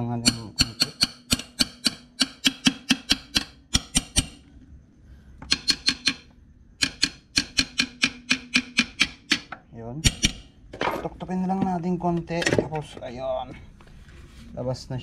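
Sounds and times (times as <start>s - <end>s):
hand tool tapping metal cover: 0.2s - 4.4s, 5.4s - 6.2s, 6.8s - 10.4s.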